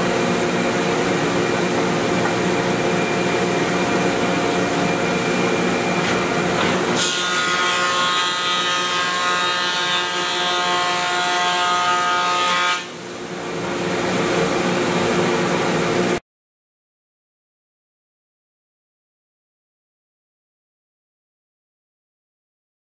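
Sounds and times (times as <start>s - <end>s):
thickness planer running: 0.0s - 16.2s.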